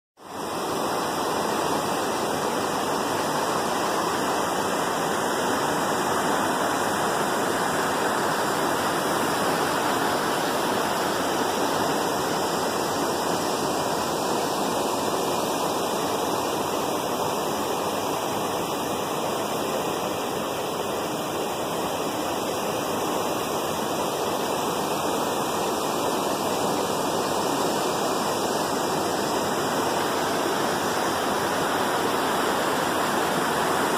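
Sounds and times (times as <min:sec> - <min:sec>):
rushing water: 0:00.2 - 0:33.9.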